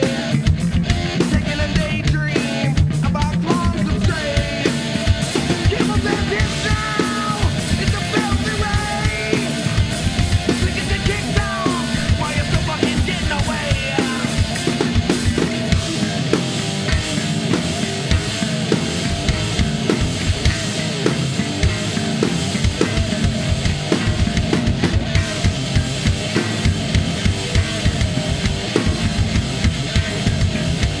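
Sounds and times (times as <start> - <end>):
rock music: 0.0 - 31.0.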